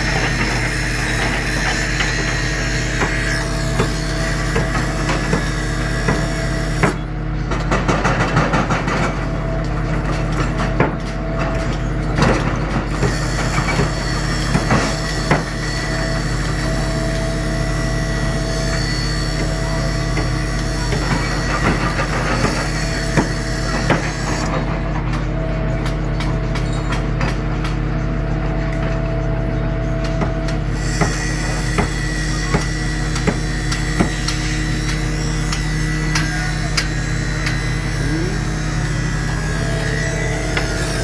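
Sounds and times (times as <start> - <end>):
hydraulic breaker knocking on rock: 0.0 - 7.0, 13.0 - 16.6, 19.0 - 24.4, 30.8 - 39.1
diesel engine running: 0.0 - 41.0.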